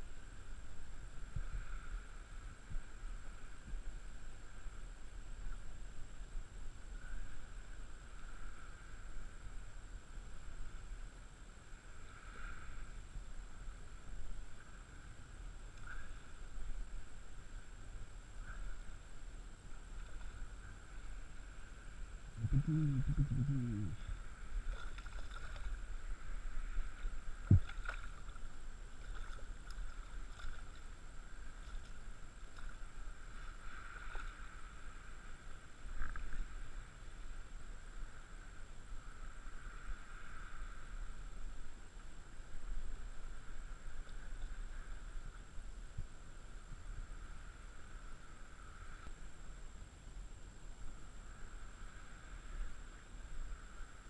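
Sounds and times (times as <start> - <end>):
water lapping and splashing: 18.3 - 37.4
short low vocal sound: 22.4 - 24.3.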